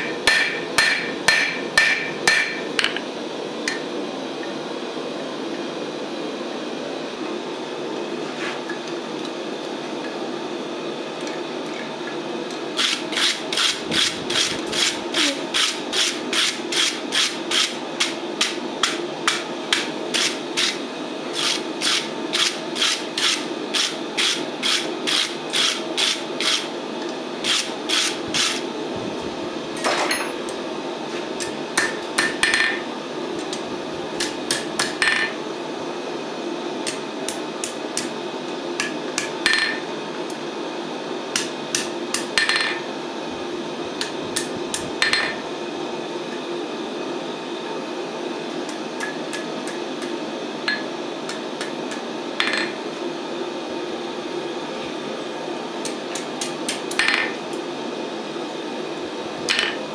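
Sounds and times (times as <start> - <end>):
steady hum: 0.0 - 59.9
hammer striking steel on anvil: 0.2 - 2.9, 45.0 - 45.4.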